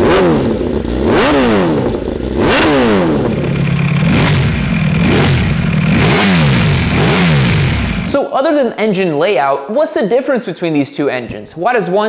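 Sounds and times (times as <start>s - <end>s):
motorcycle engines revving: 0.0s - 8.2s.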